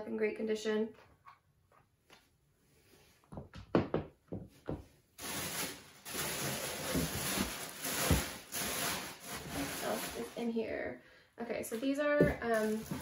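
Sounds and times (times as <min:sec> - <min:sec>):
packaging rustling in cardboard box: 0:05.2 - 0:10.4, 0:12.4 - 0:13.0.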